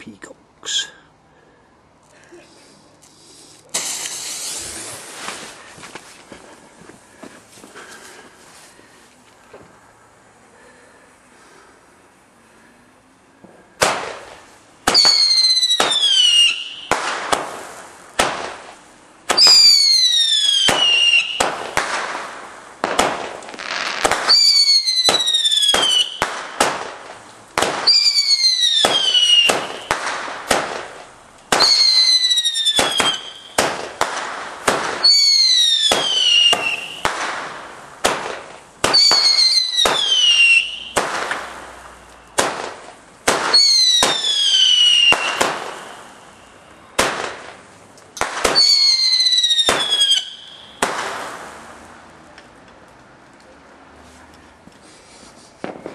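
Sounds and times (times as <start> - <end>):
firework bangs: 3.4 - 8.5, 13.4 - 52.7, 54.6 - 55.9
firework whistles falling in pitch: 3.7 - 5.6, 14.9 - 17.0, 19.4 - 21.6, 23.5 - 26.3, 27.8 - 30.0, 31.6 - 33.8, 35.0 - 37.1, 38.9 - 41.0, 43.5 - 47.0, 48.5 - 51.0.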